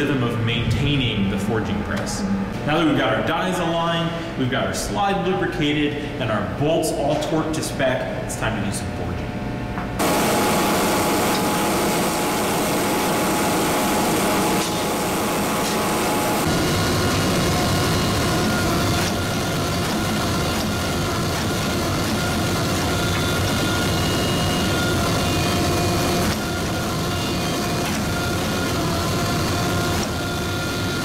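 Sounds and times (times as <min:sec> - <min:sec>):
hydraulic press mechanical drone: 0:10.0 - 0:31.0.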